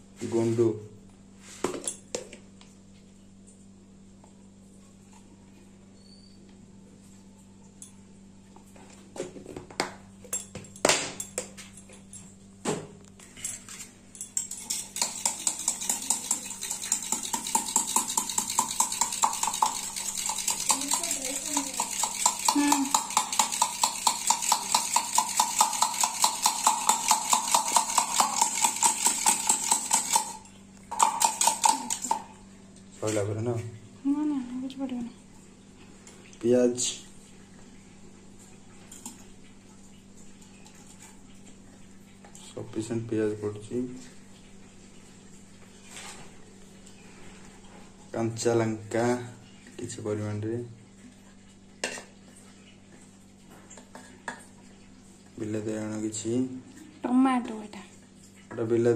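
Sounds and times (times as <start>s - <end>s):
whisk clattering in metal tumbler: 13.5s - 32.3s.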